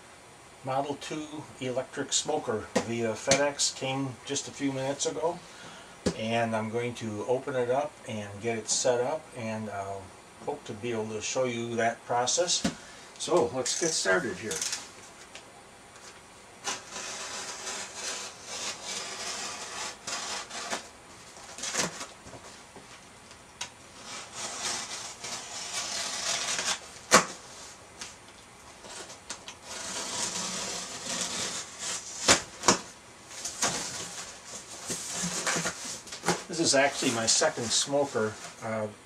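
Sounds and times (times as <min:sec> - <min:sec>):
knife slicing packing tape: 0:16.6 - 0:20.9, 0:21.6 - 0:22.1, 0:24.0 - 0:27.4, 0:28.8 - 0:32.9
cardboard flaps clicking: 0:32.2 - 0:34.1.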